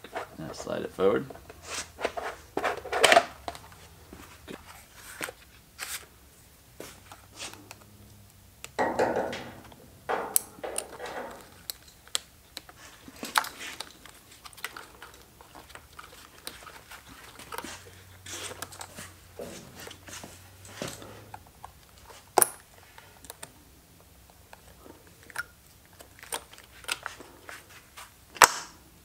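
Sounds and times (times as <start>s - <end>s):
scraping rustle: 0.0s - 6.2s, 6.8s - 7.9s, 12.7s - 23.3s
plastic parts clicking and knocking: 1.2s - 3.8s, 8.6s - 17.7s, 24.2s - 27.3s, 28.3s - 28.7s.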